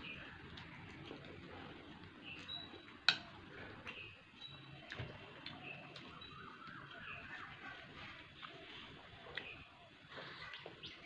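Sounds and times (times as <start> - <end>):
person chewing: 0.1 - 4.1.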